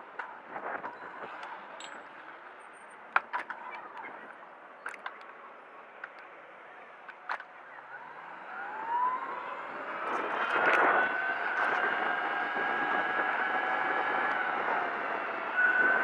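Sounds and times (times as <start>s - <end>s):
electric motor and chain whining: 10.1s - 16.0s.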